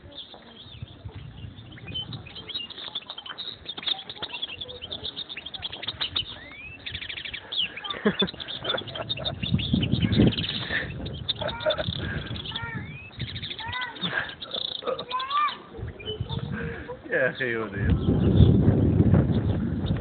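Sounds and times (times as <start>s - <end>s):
finch singing: 0.0s - 20.0s
low thumps: 17.8s - 20.0s.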